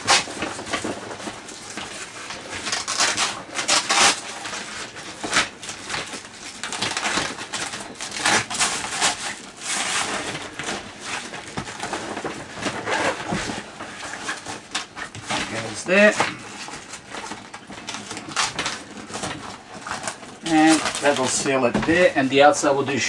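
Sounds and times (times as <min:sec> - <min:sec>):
canvas rustling: 0:00.0 - 0:23.0
velcro strips rasping: 0:02.6 - 0:04.4, 0:08.0 - 0:10.3, 0:12.8 - 0:13.2, 0:17.8 - 0:19.1.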